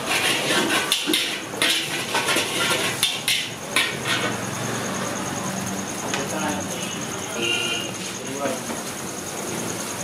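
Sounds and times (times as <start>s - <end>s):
metal spatula scraping a wok: 0.0s - 4.6s.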